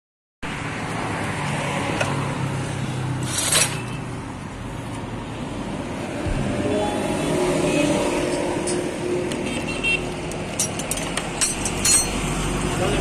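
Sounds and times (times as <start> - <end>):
traffic engine hum: 0.5 - 13.0.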